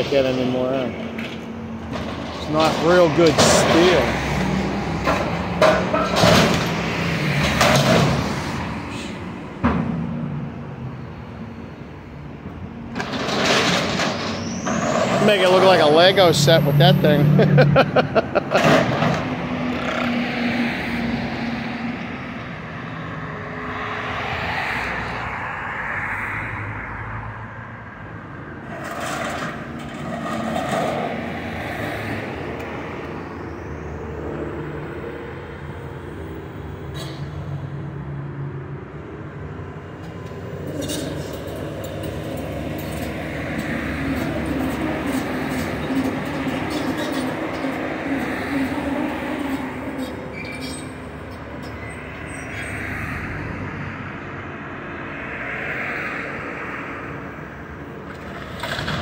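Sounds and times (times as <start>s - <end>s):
crashes and scrapes of steel: 13.0s - 16.1s, 28.7s - 31.2s, 40.7s - 48.3s
excavator engine under load: 40.0s - 51.9s.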